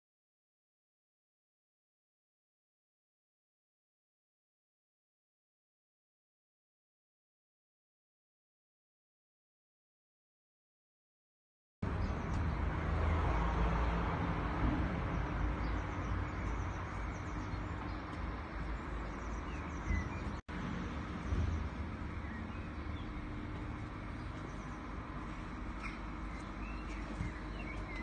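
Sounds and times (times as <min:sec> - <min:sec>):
low outdoor rumble: 0:11.8 - 0:28.0
small birds chirping: 0:11.9 - 0:13.4, 0:15.0 - 0:28.0.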